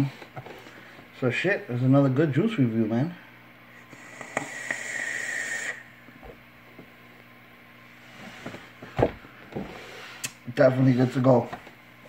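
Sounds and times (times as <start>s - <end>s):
vape draw hissing: 3.8s - 6.0s.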